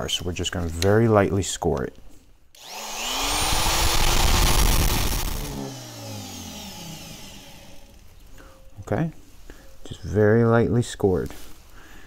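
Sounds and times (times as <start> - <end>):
rotary tool grinding metal: 2.6 - 8.1.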